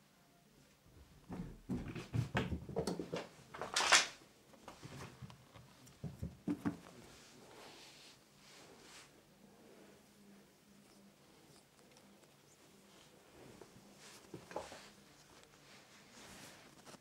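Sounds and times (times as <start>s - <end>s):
soft knocks and thumps: 1.1s - 3.3s, 4.8s - 7.0s
rustling: 10.6s - 17.0s.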